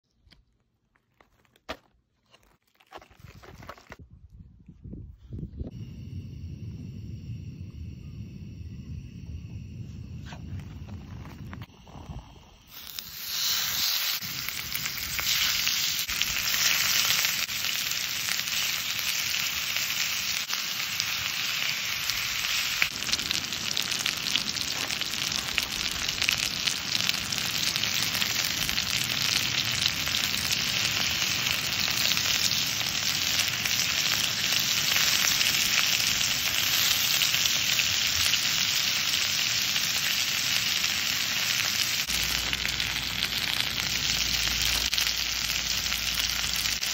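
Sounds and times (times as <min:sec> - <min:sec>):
meat sizzling in a skillet: 0:12.6 - 0:46.9.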